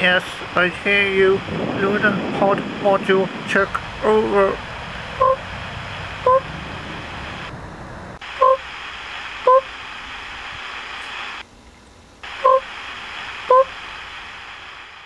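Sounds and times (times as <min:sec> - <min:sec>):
radio static hiss: 0:00.0 - 0:07.5, 0:08.2 - 0:11.5, 0:12.2 - 0:15.0
short beeps: 0:05.2 - 0:05.4, 0:06.2 - 0:06.4.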